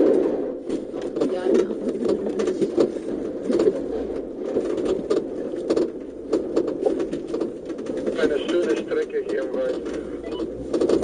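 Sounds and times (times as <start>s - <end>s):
knocks and rattles: 0.0s - 11.0s
vehicle engine drone: 8.1s - 11.0s.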